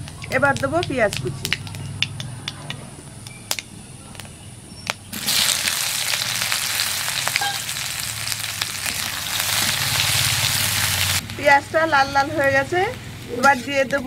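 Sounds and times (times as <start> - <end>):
onion sizzling in hot oil: 5.1 - 14.0.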